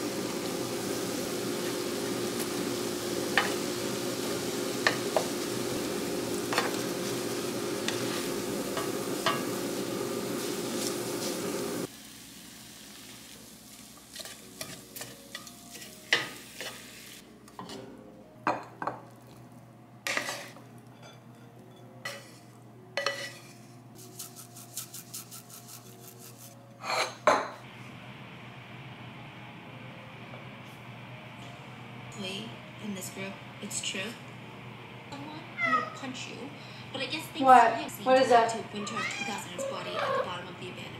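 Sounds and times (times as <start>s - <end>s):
food sizzling in a frying pan: 0.0s - 17.2s, 20.0s - 21.2s, 22.0s - 24.6s
wooden spatula scraping pan: 6.5s - 9.5s, 23.0s - 23.6s.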